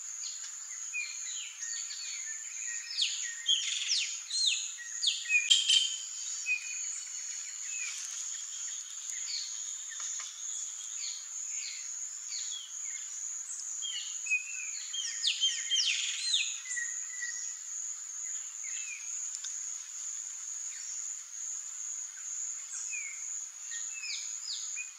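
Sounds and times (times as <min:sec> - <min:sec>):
bird chirps and calls: 0:05.2 - 0:06.1.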